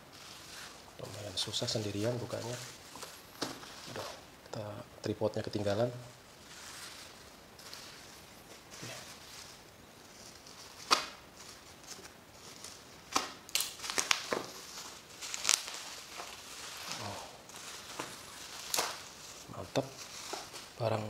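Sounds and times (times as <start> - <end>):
plastic crinkling and tearing: 0.0 - 4.3, 5.8 - 21.0
sharp plastic snaps: 10.8 - 11.2
knife slitting packing tape: 17.9 - 19.2.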